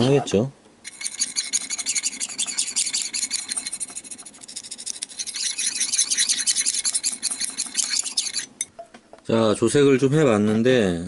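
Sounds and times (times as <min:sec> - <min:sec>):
metal rod scraping metal dish: 0:00.9 - 0:08.7.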